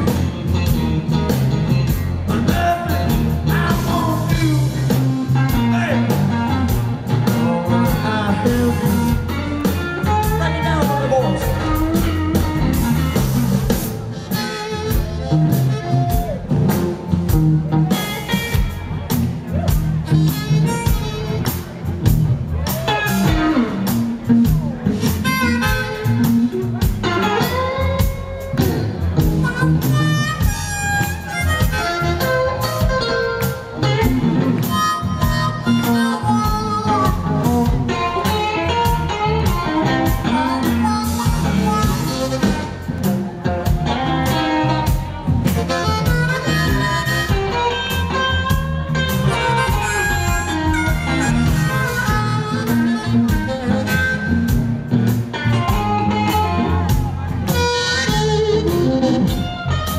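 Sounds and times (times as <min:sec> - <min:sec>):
amplified blues harmonica: 0:00.0 - 0:59.9
live band backing: 0:00.0 - 0:59.9.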